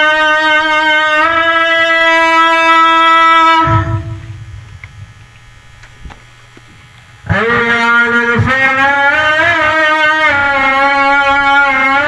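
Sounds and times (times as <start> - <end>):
reedy wind instrument note: 0.0 - 5.8
faint low hum: 0.6 - 12.0.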